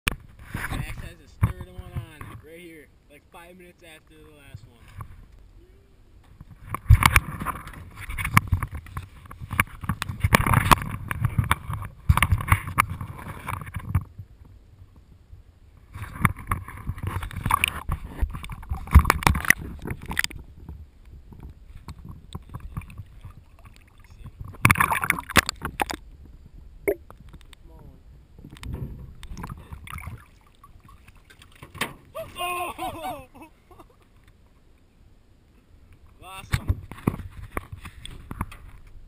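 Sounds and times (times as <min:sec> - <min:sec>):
water splashing against canoe hull: 0:06.3 - 0:14.3, 0:15.8 - 0:27.6, 0:28.4 - 0:33.0.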